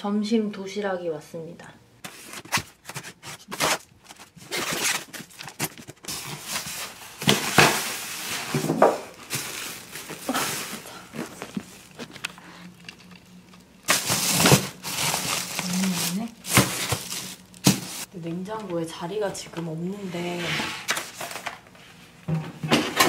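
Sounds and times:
packing tape being cut: 2.0 - 8.2, 13.8 - 18.1
plastic bag rustling: 2.0 - 18.1.

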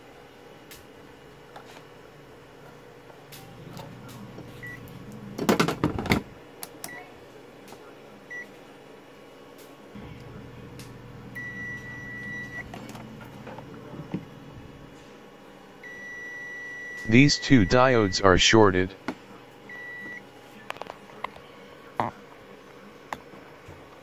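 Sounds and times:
multimeter continuity beeps: 11.4 - 12.7, 15.8 - 18.4, 19.7 - 20.2.

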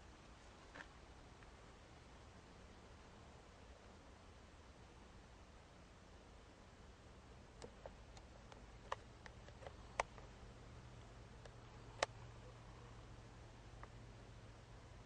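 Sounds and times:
low steady hum and hiss: 0.0 - 15.0
faint ticks and clicks: 7.5 - 12.9, 13.6 - 14.1.

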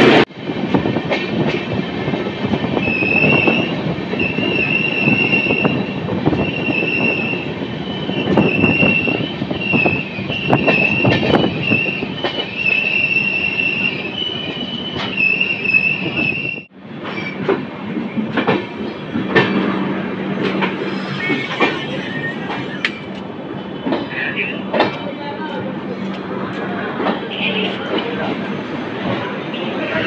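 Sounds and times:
train rumbling on rails: 0.0 - 30.0
high metallic squeal: 20.6 - 23.1.

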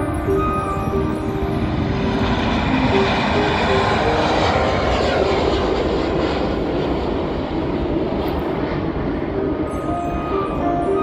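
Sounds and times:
jet aircraft taking off: 0.0 - 11.0.

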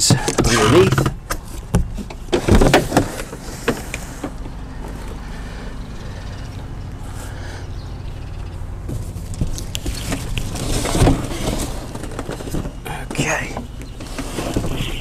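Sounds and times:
distant lawn mower engines: 0.0 - 15.0
cardboard and plastic wrap rustling: 8.9 - 15.0.

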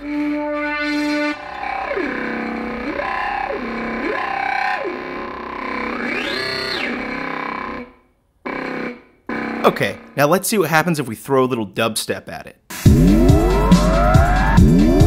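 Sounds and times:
synthesizer tone sweeping in pitch: 0.0 - 10.2, 12.8 - 15.0.

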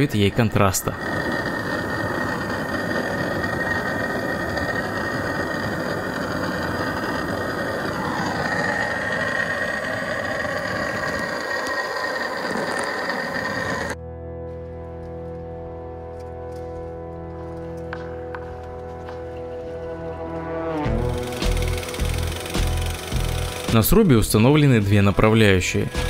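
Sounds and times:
gas torch hissing: 0.0 - 14.0, 20.9 - 24.7, 25.5 - 26.0.

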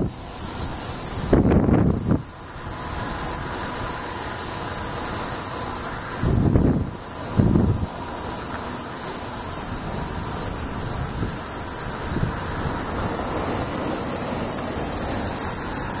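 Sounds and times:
wind buffeting microphone: 0.0 - 2.4, 6.1 - 8.1, 9.4 - 16.0
insects trilling: 0.0 - 16.0.

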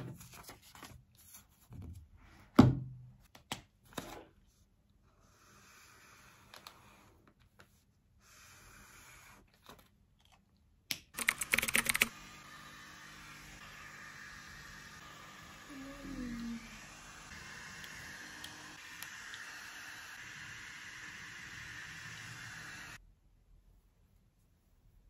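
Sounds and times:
typing on a computer keyboard: 11.1 - 12.1.

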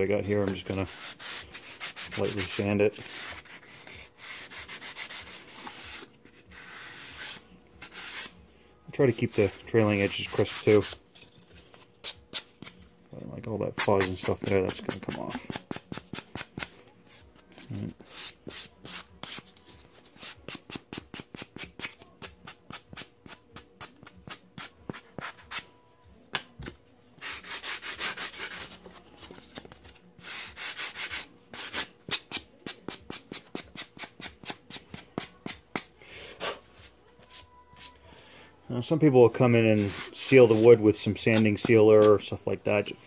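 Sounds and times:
sanding sponge rubbing wood: 0.5 - 6.0, 27.2 - 28.7, 39.7 - 40.7.

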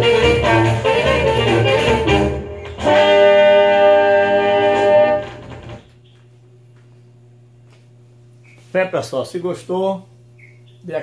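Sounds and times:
low steady hum: 2.4 - 11.0
orchestra held chord: 2.6 - 5.4.

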